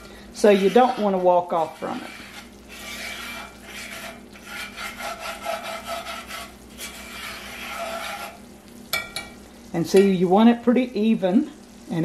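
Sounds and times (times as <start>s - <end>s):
whisk scraping a skillet: 0.0s - 9.4s.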